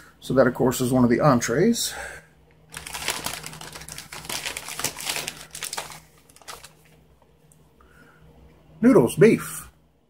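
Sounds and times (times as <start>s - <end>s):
foil food pouch crinkling: 2.7s - 7.0s.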